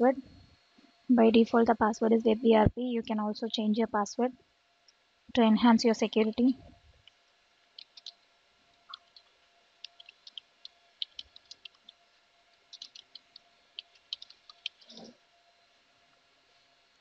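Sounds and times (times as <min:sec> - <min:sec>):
keyboard keys clicking: 0:07.8 - 0:08.2, 0:08.9 - 0:12.0, 0:12.7 - 0:15.0.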